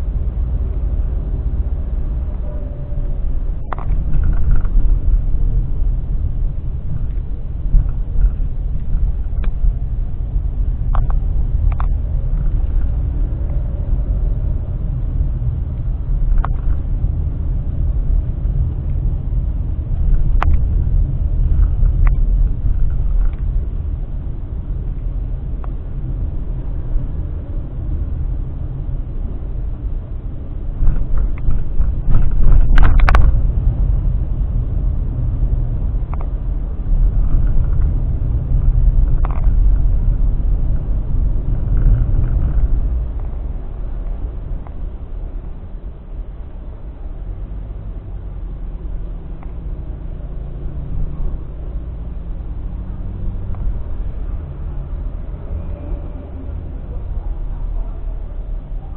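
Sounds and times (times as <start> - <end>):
car driving rumble inside cabin: 0.0 - 58.9.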